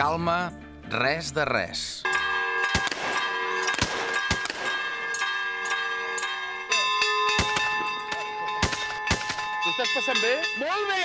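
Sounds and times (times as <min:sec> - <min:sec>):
church bells ringing: 0:02.0 - 0:11.0
sharp bangs: 0:02.1 - 0:09.8.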